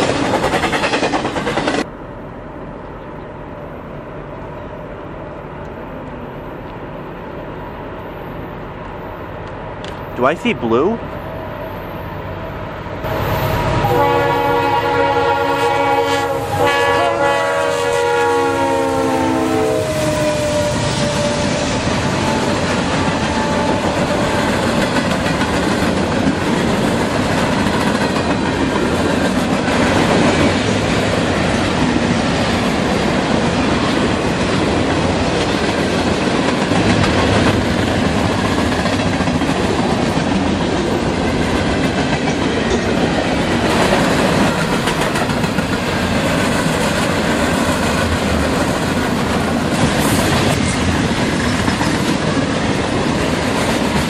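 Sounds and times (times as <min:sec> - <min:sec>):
locomotive air horn chord: 0:13.1 - 0:22.5
freight cars rumbling and clacking: 0:21.3 - 0:54.0.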